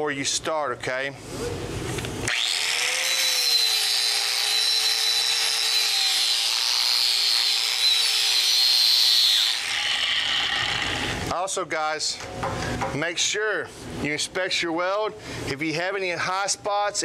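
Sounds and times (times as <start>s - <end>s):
wire wheel grinder on metal: 2.3s - 11.3s.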